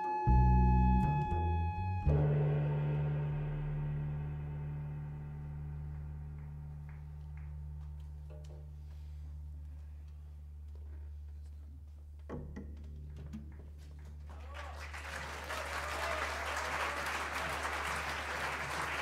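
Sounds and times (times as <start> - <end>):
low steady hum: 0.3 - 14.3
audience applause: 14.2 - 19.0.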